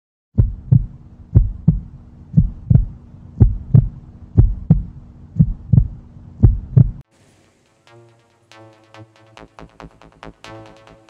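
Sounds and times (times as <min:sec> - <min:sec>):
faint steady hum: 0:00.4 - 0:07.0
heartbeat thumps: 0:00.4 - 0:07.0.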